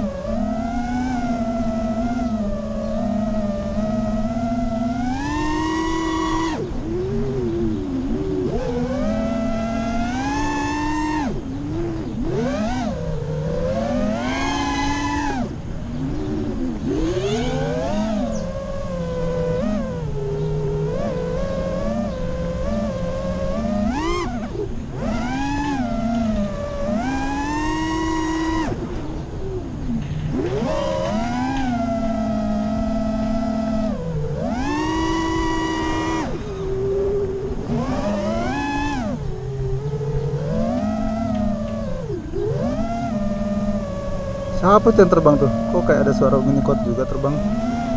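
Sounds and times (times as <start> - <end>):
quadcopter motors whining: 0.0 - 47.9.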